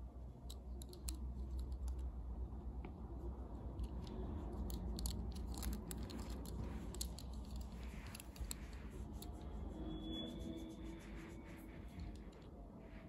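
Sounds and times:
steady low rumble: 0:00.0 - 0:13.0
toy car clicks and rustling: 0:00.5 - 0:02.1, 0:03.6 - 0:09.5.

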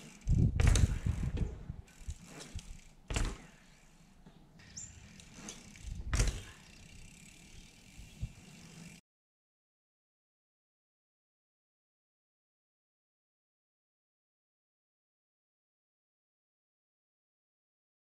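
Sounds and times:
bicycle landing thud: 0:00.0 - 0:07.3.

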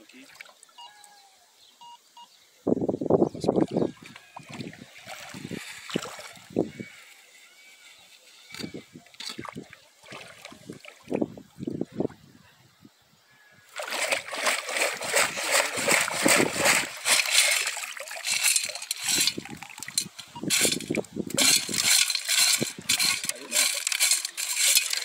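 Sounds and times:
water splashing and sloshing: 0:04.0 - 0:06.6, 0:09.0 - 0:11.8, 0:13.7 - 0:25.0.

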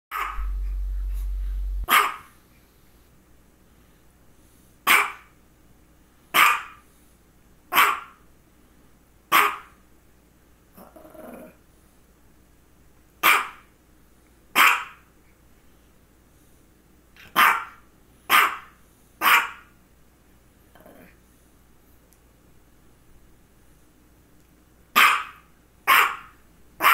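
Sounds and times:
soft low sound: 0:00.1 - 0:01.9
small dog barking: 0:00.1 - 0:02.3, 0:04.9 - 0:05.3, 0:06.3 - 0:06.8, 0:07.7 - 0:08.2, 0:09.3 - 0:09.8, 0:13.2 - 0:13.7, 0:14.6 - 0:15.1, 0:17.2 - 0:19.7, 0:24.9 - 0:26.9.

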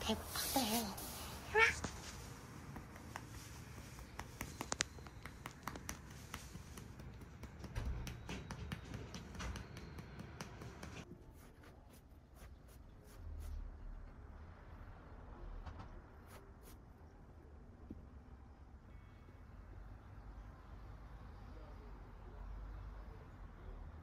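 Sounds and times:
hand patting cat: 0:01.6 - 0:11.0.

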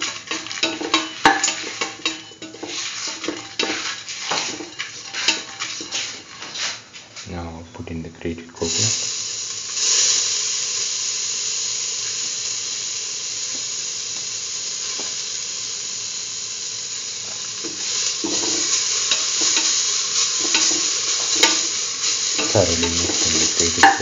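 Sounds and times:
spatula scraping a pan: 0:00.0 - 0:07.1, 0:17.6 - 0:24.0
food sizzling in hot oil: 0:00.0 - 0:07.2, 0:08.5 - 0:24.0.

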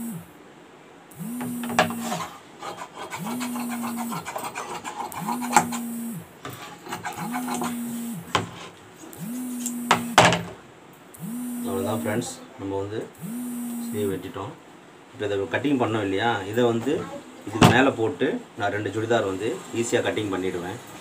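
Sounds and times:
pulsing low hum: 0:01.1 - 0:02.3, 0:03.1 - 0:04.4, 0:05.1 - 0:06.4, 0:07.1 - 0:08.3, 0:09.1 - 0:10.2, 0:11.1 - 0:12.3, 0:13.2 - 0:14.2
shears cutting cloth: 0:01.2 - 0:10.2
sharp clicks: 0:09.1 - 0:10.2.

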